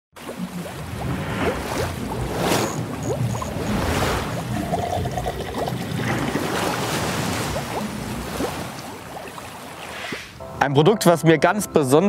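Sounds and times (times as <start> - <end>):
rising bubble blips: 0.2 - 9.4
bubbling and trickling liquid: 0.2 - 10.1
steady water rush: 0.2 - 10.4.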